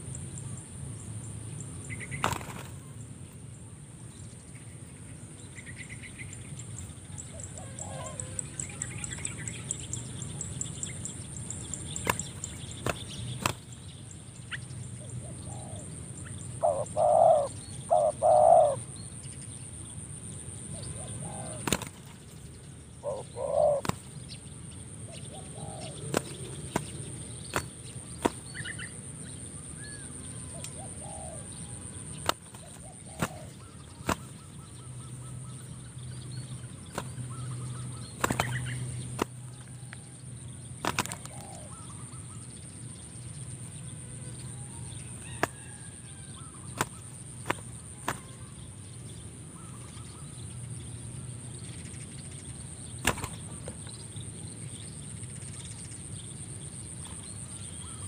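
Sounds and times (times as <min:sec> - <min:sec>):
small birds chirping: 0:00.0 - 0:58.0
wing slaps and flaps: 0:02.1 - 0:02.9, 0:11.9 - 0:13.8, 0:21.6 - 0:22.4, 0:23.8 - 0:24.2, 0:26.0 - 0:28.7, 0:32.1 - 0:34.5, 0:36.8 - 0:39.7, 0:40.8 - 0:41.5, 0:45.4 - 0:45.6, 0:46.7 - 0:48.4, 0:53.0 - 0:54.0
doves cooing: 0:07.2 - 0:10.8, 0:15.0 - 0:19.0, 0:20.6 - 0:22.3, 0:23.0 - 0:24.2, 0:25.0 - 0:29.1, 0:29.7 - 0:40.0, 0:40.7 - 0:42.7, 0:44.0 - 0:50.4.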